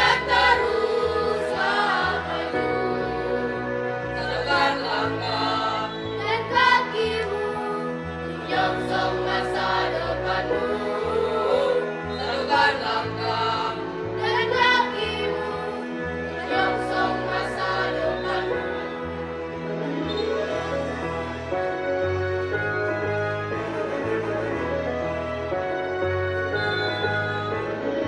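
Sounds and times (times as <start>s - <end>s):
children's choir singing: 0.0s - 19.2s
instrumental accompaniment with bass: 0.0s - 28.0s.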